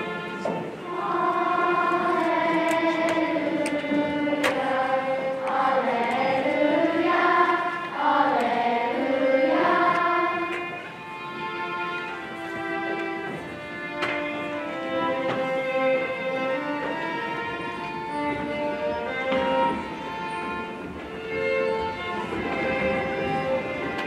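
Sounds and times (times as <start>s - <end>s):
choir singing sustained chords: 0.6s - 11.1s.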